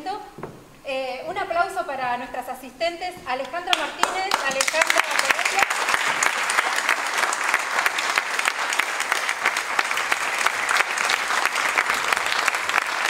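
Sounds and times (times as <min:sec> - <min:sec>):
crowd applauding: 0:03.7 - 0:13.0.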